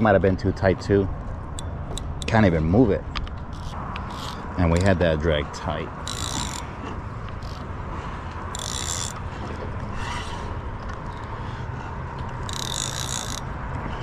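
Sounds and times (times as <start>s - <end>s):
fishing reel buzzing: 3.5s - 4.4s, 6.0s - 6.7s, 7.4s - 7.6s, 8.5s - 9.3s, 12.4s - 13.5s.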